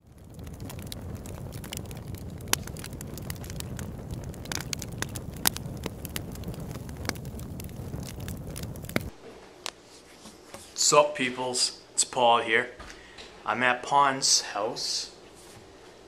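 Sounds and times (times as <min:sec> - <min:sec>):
fire crackling and popping: 0:00.0 - 0:09.2
low rumble of flames: 0:00.0 - 0:09.2.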